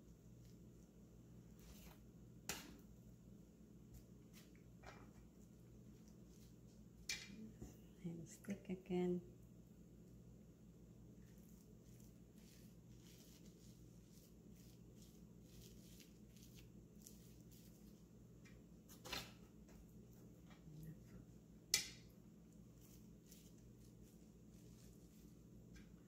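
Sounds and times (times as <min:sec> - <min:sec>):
low steady hum: 0:00.0 - 0:26.0
pats and crinkles of plastic wrap: 0:11.2 - 0:18.2, 0:22.6 - 0:25.7.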